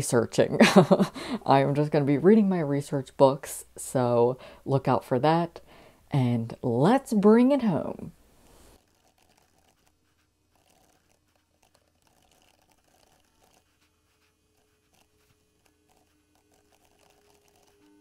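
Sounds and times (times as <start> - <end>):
laptop keys typing: 8.8 - 18.0.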